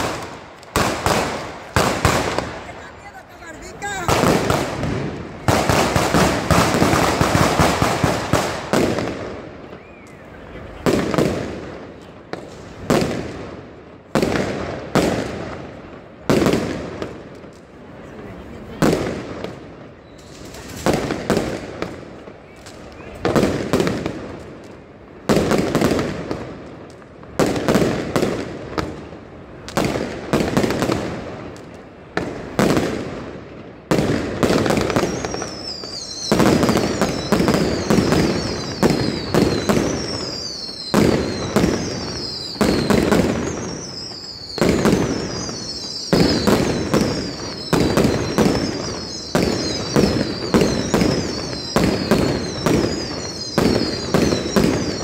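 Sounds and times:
fireworks banging and crackling: 0:00.0 - 0:55.0
high falling whistles: 0:09.7 - 0:10.3, 0:35.0 - 0:55.0.

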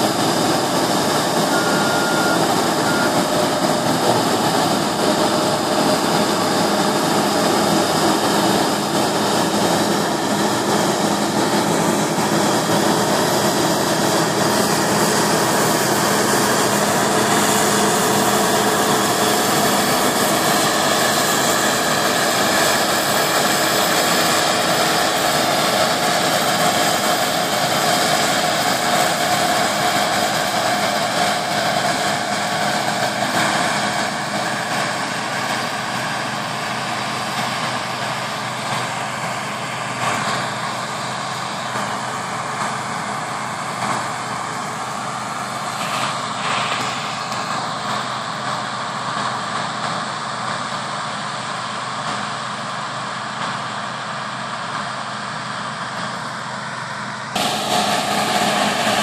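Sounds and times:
combine harvester running: 0:00.0 - 0:59.0
faint machine whines: 0:01.4 - 0:03.4, 0:56.6 - 0:59.0.

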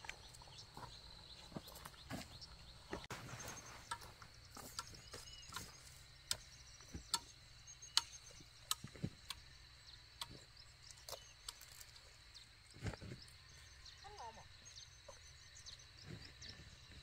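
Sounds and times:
faint bird chirps: 0:00.0 - 0:17.0
high insect drone: 0:00.0 - 0:17.0
sharp ticks: 0:03.8 - 0:09.4.

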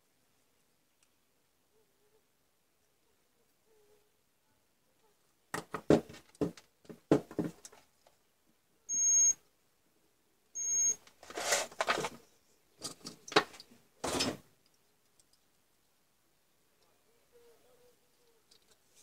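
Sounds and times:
multimeter continuity buzzer beeping: 0:08.9 - 0:09.4, 0:10.6 - 0:11.0
handling noise of motor housing: 0:11.1 - 0:12.2, 0:12.8 - 0:14.5.

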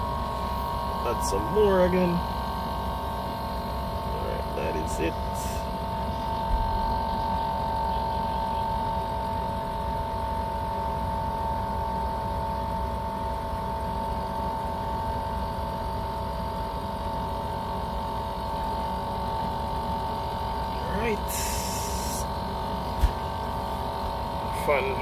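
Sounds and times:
air conditioner unit humming: 0:00.0 - 0:25.0.

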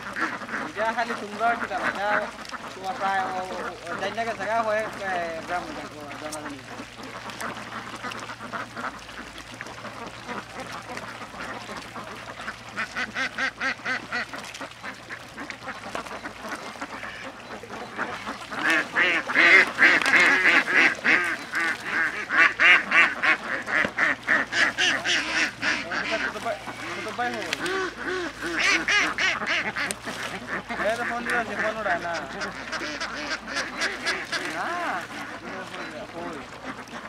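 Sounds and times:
birds calling in rapid runs: 0:00.0 - 0:37.0.

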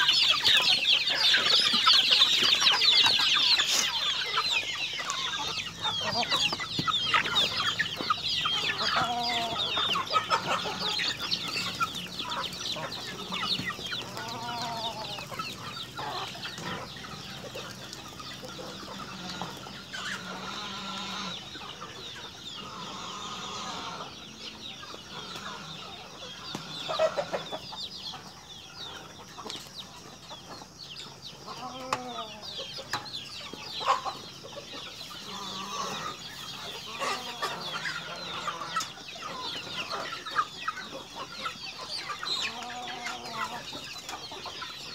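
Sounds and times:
chickens clucking: 0:00.0 - 0:44.9.

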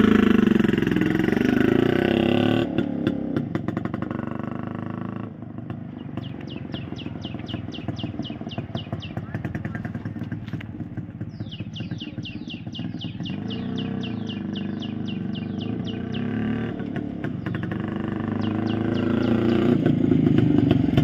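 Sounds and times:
two-stroke motorcycle approaching: 0:00.0 - 0:21.0
bird chirping: 0:05.9 - 0:10.4, 0:11.2 - 0:19.8.

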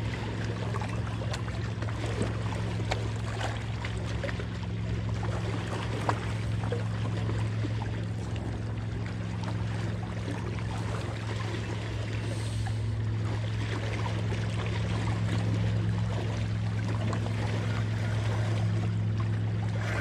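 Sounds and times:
steady low hum: 0:00.0 - 0:20.0
water lapping against rocks: 0:00.0 - 0:20.0.

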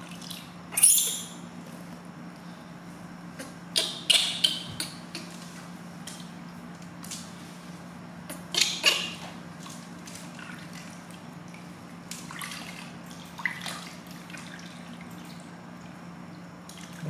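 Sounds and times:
water splashing in a steel basin: 0:12.2 - 0:15.4.

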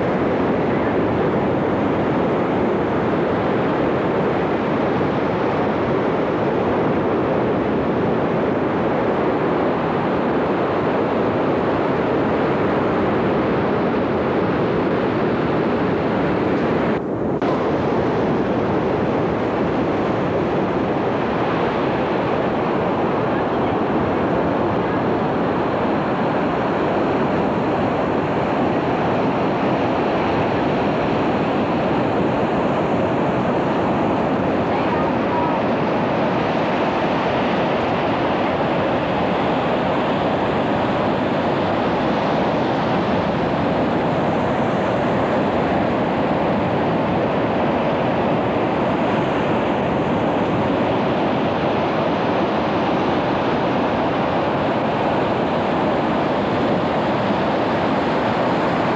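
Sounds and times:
ocean surf breaking on beach: 0:00.0 - 0:58.9.

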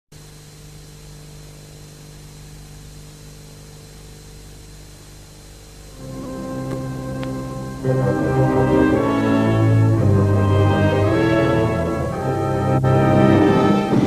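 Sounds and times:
low electrical hum: 0:00.2 - 0:14.0
steady hiss: 0:00.2 - 0:14.0
orchestral music: 0:06.0 - 0:14.0.

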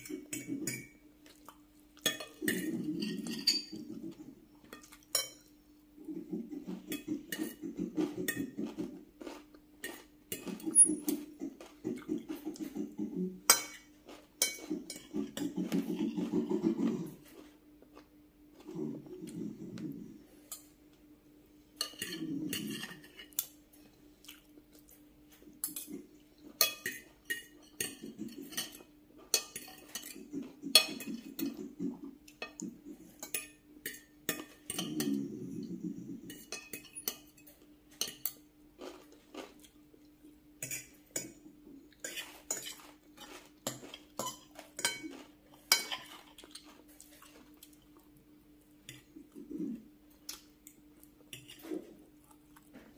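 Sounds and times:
chewing: 0:00.1 - 0:20.7, 0:21.8 - 0:26.6, 0:37.1 - 0:52.9
cutlery clinking on glass dishes: 0:02.0 - 0:04.1, 0:09.8 - 0:11.3, 0:13.5 - 0:16.4, 0:21.8 - 0:23.6, 0:26.6 - 0:31.7, 0:36.3 - 0:38.5, 0:42.0 - 0:46.7.

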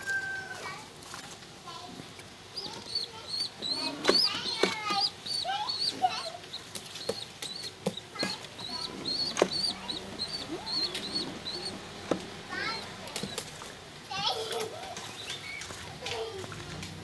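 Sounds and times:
high chirping: 0:02.5 - 0:13.7, 0:15.0 - 0:15.7.

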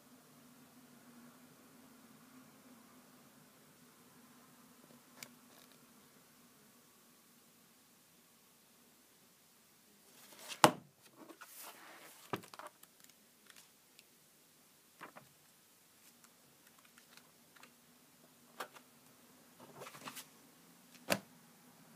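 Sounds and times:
paper rustling: 0:10.1 - 0:13.7, 0:15.0 - 0:15.3, 0:19.6 - 0:20.3.

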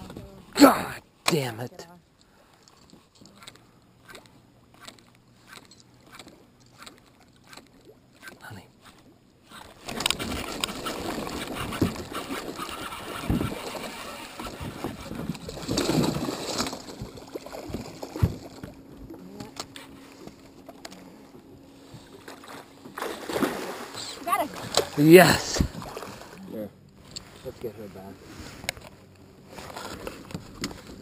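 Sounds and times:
fish splashing and thrashing: 0:02.5 - 0:26.4
knocks from boat and rod: 0:14.4 - 0:23.0.

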